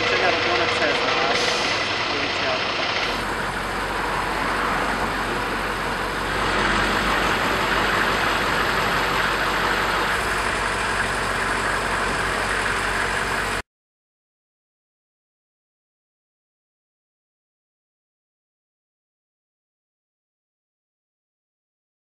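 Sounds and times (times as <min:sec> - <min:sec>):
diesel engine idling: 0:00.0 - 0:13.6.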